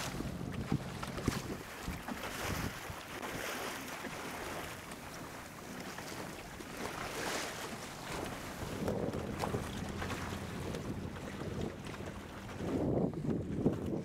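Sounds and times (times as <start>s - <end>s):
wind on microphone: 0.0s - 3.6s, 6.7s - 14.0s
water washing along hull: 0.0s - 14.0s.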